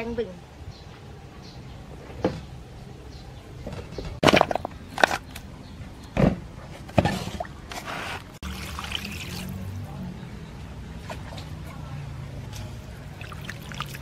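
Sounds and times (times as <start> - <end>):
water splashing into metal bowl: 8.4 - 9.8, 12.8 - 14.0.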